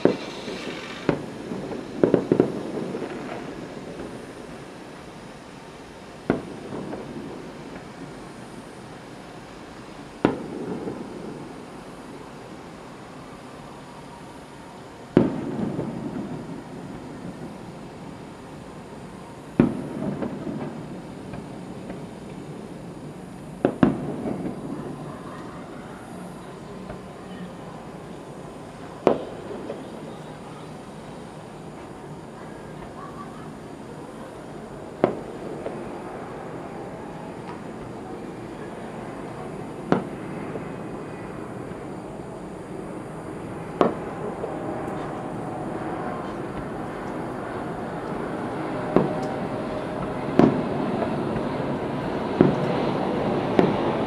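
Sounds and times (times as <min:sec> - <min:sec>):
distant firework bang: 0:00.0 - 0:04.2, 0:06.2 - 0:07.9, 0:10.2 - 0:11.7, 0:15.1 - 0:17.5, 0:19.6 - 0:22.1, 0:23.6 - 0:25.4, 0:29.0 - 0:29.9, 0:43.8 - 0:44.2, 0:50.4 - 0:51.5, 0:52.4 - 0:52.7, 0:53.5 - 0:53.8
distant firework bangs: 0:00.0 - 0:05.2, 0:06.2 - 0:08.6, 0:10.2 - 0:12.2, 0:15.1 - 0:18.2, 0:19.5 - 0:22.7, 0:23.5 - 0:27.4, 0:28.8 - 0:30.8, 0:34.9 - 0:36.2, 0:37.1 - 0:41.8, 0:43.6 - 0:45.4, 0:46.1 - 0:54.0
steady background noise: 0:00.0 - 0:54.0.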